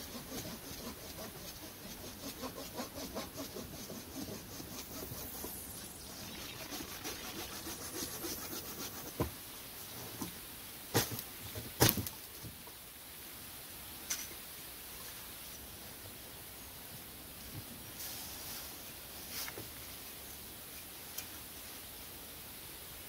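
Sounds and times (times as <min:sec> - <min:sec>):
hand saw cutting wood: 0:00.0 - 0:05.8, 0:06.5 - 0:09.3.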